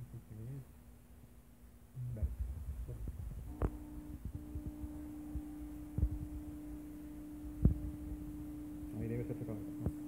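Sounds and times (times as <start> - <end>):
stepper motor hum: 2.0 - 10.0.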